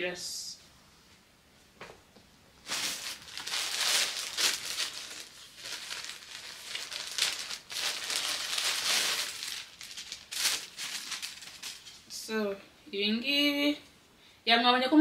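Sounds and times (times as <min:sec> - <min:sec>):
plastic bag crinkling: 0:02.6 - 0:12.2.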